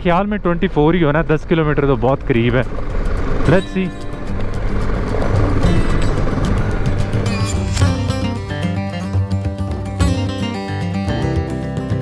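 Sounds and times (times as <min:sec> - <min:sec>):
strummed acoustic guitar music: 0:02.8 - 0:12.0.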